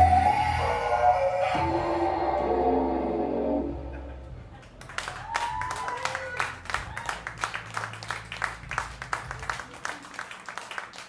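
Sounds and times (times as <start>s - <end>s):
audience applauding: 4.6s - 11.0s
short cheers: 5.0s - 7.3s.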